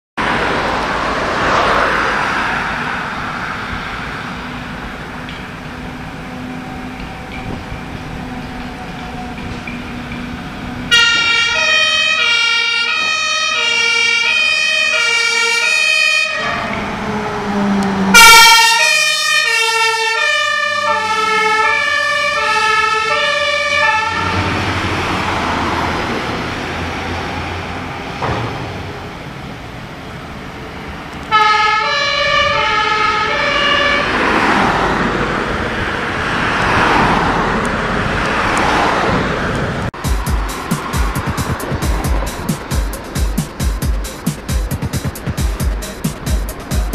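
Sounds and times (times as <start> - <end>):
diesel engine and tyres: 0.2 - 46.9
passing vehicle road noise: 0.2 - 46.9
fire engine two-tone siren: 1.7 - 28.1, 31.3 - 37.5.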